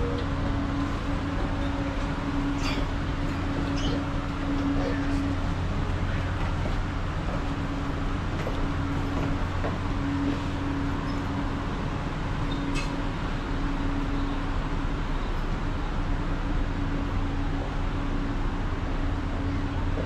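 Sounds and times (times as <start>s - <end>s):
low engine drone: 0.0s - 20.0s.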